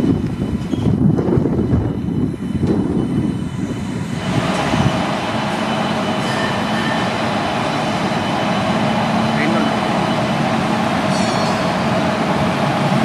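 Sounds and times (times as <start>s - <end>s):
locomotive rumbling on track: 0.0s - 13.0s.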